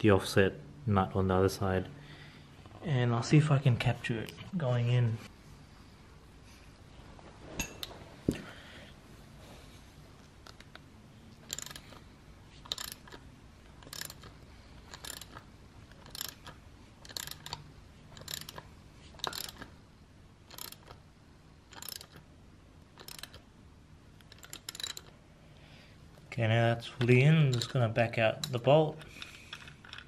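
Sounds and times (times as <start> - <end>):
ratchet wrench clicking: 11.4 - 12.0, 12.6 - 13.2, 13.8 - 19.7, 20.5 - 21.0, 21.7 - 22.2, 23.0 - 23.4, 24.2 - 25.1.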